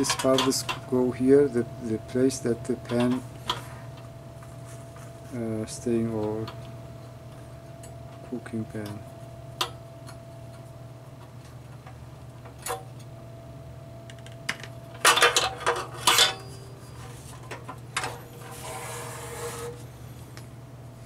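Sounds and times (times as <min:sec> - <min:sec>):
stove scraping on bench: 0:18.0 - 0:19.8.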